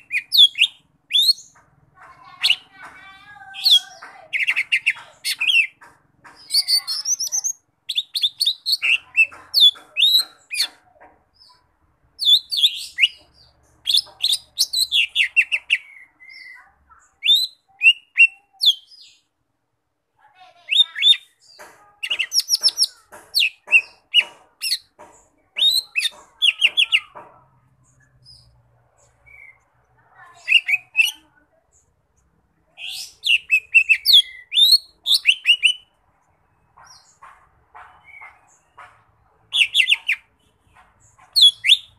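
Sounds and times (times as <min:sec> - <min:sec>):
bird singing chirps and whistles: 0:32.8 - 0:35.9, 0:41.4 - 0:41.9.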